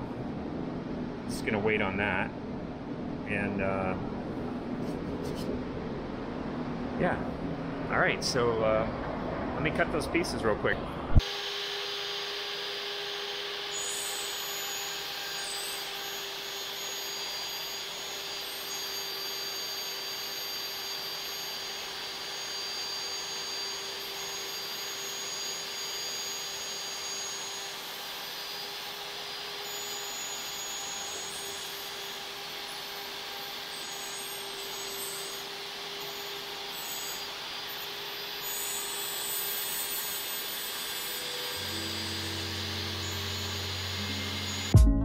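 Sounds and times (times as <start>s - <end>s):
table saw ripping wood: 11.2s - 44.8s.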